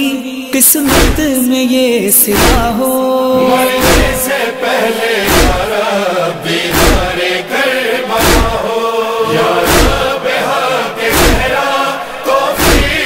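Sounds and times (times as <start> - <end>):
voices chanting a lament: 0.0 - 13.0
deep rhythmic thud: 0.9 - 1.4, 2.4 - 2.8, 3.4 - 4.4, 5.2 - 5.8, 6.5 - 13.0.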